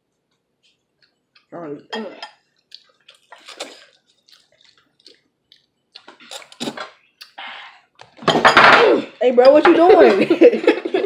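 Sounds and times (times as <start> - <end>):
wet noodle slurping: 2.7 - 7.4.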